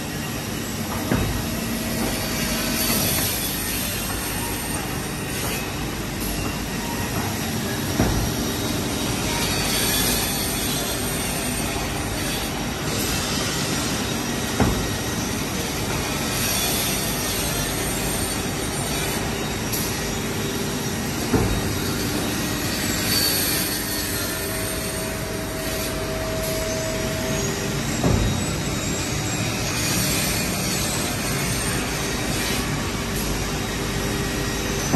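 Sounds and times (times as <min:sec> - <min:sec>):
sharp knocks: 0:06.4 - 0:08.4, 0:14.6 - 0:15.1.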